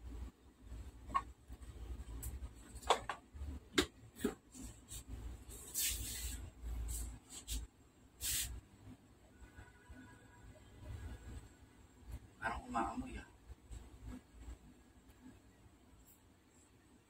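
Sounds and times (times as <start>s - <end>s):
short hissing rustles: 5.6s - 8.6s.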